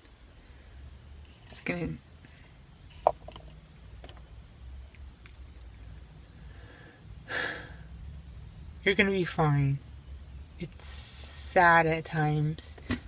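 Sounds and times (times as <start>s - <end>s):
low steady hum: 0.0s - 13.0s
person breathing: 6.3s - 7.9s.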